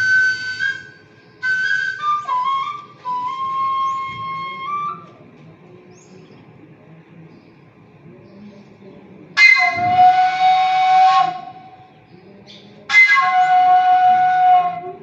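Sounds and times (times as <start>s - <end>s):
high whistle-like notes: 9.4s - 11.8s.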